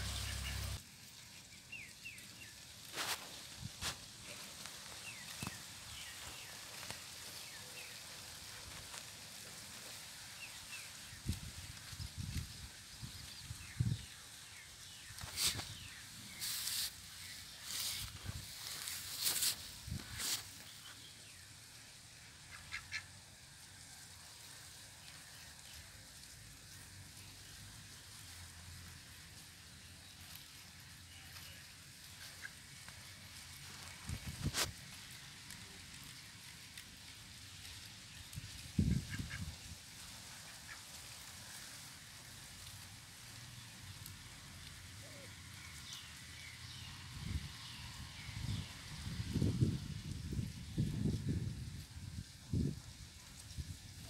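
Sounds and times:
ducks calling softly: 0.0s - 0.8s, 22.3s - 23.2s, 32.1s - 33.2s, 38.8s - 41.7s
small birds chirping: 0.0s - 9.1s, 9.8s - 23.2s
duck pecking and foraging in grass: 0.0s - 54.0s
rustle: 0.0s - 54.0s.

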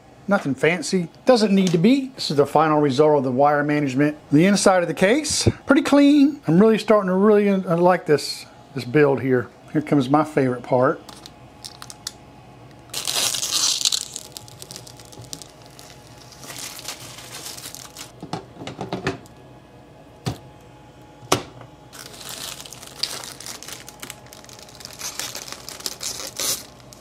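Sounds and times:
plastic film peeling: 11.1s - 12.2s, 12.8s - 18.2s, 22.0s - 27.0s.

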